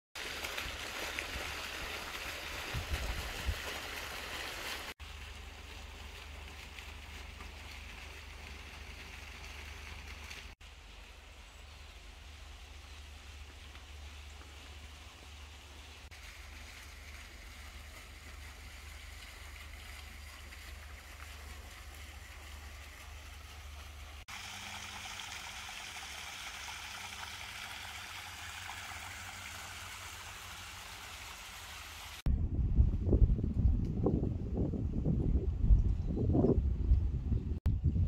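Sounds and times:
outdoor hiss over low rumble: 5.0s - 32.2s.

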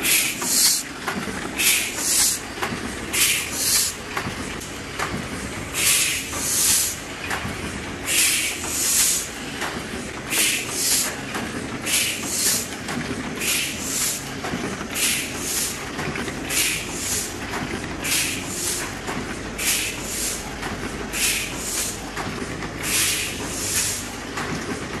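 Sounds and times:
air hissing from sheet feeder: 0.0s - 0.9s, 1.6s - 2.4s, 3.2s - 4.0s, 5.8s - 7.0s, 8.1s - 9.3s, 10.3s - 11.1s, 11.9s - 12.7s, 13.4s - 14.2s, 16.5s - 17.4s, 18.0s - 18.8s, 19.6s - 20.5s, 21.2s - 22.0s, 22.8s - 24.2s
die-cutting machine clattering: 0.0s - 25.0s.

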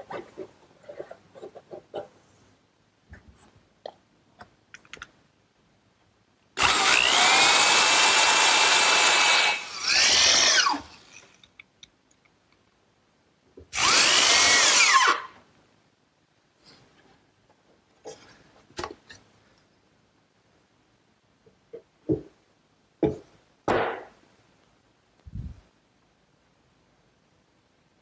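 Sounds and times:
electric drill driving screws into wood: 6.6s - 11.3s, 13.7s - 15.4s.

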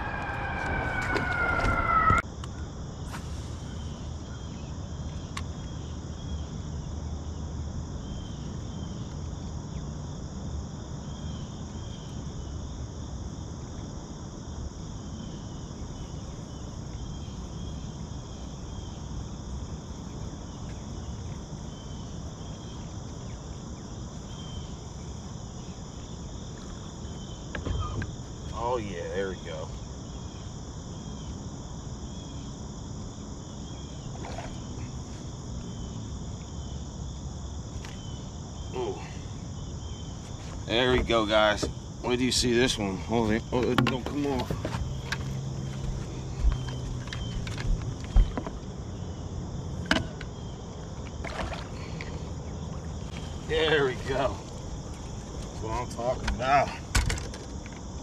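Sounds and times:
falling two-tone whine: 0.0s - 2.4s
insects buzzing: 0.0s - 58.0s.

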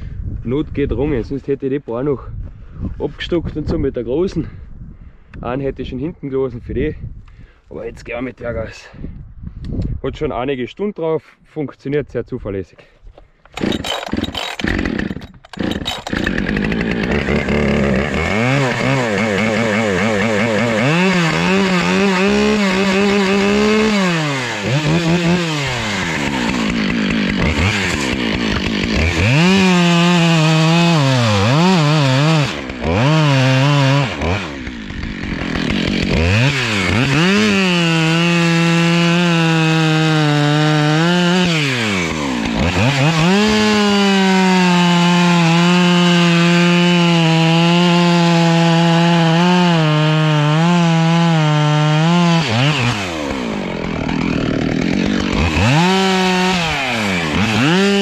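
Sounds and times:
chainsaw revving and cutting: 13.5s - 58.0s.

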